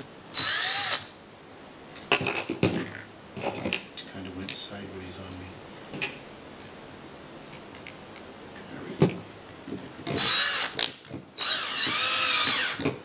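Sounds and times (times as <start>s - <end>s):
cordless drill motor running: 0.4s - 1.1s, 10.1s - 10.8s, 11.4s - 13.0s.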